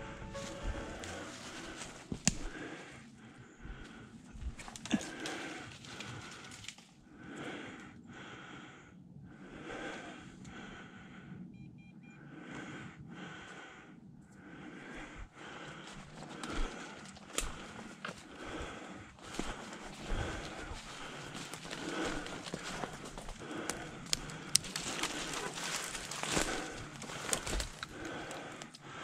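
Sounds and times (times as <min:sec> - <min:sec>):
footsteps through dry leaves: 0:00.0 - 0:02.6, 0:19.2 - 0:28.4
heavy rhythmic breathing: 0:00.0 - 0:11.5, 0:12.2 - 0:29.0
twig snaps: 0:01.8 - 0:02.6, 0:17.2 - 0:17.7, 0:23.6 - 0:28.8.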